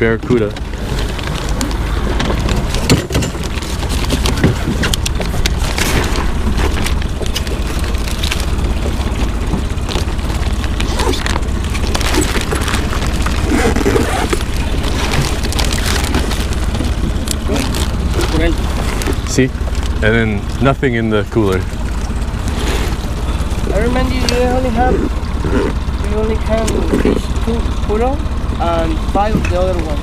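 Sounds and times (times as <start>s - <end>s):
boat engine idling: 0.0s - 30.0s
knocks and clatter on boat hull: 0.3s - 20.0s.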